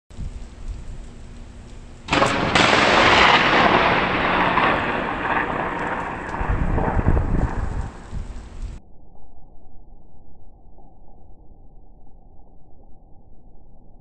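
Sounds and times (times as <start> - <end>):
rolling thunder: 2.0 - 8.8
thunder crack: 2.1 - 8.8.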